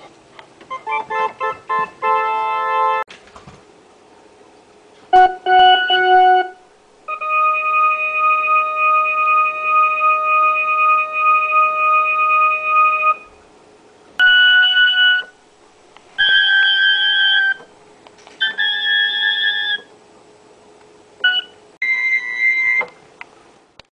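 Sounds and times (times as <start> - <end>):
electronic keyboard chord tones: 0.7 - 3.1, 5.1 - 13.3.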